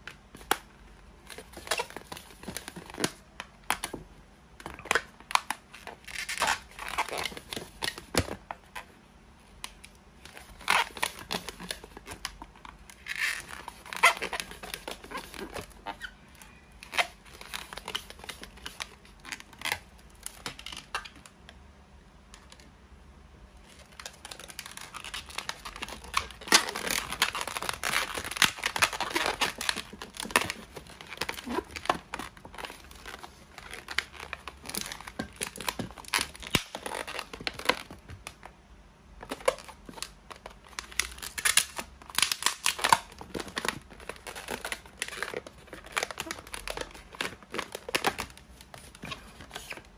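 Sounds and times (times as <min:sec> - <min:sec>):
balloons rubbing and crackling: 0:04.7 - 0:08.9, 0:10.3 - 0:19.8, 0:23.7 - 0:38.1, 0:39.3 - 0:49.9.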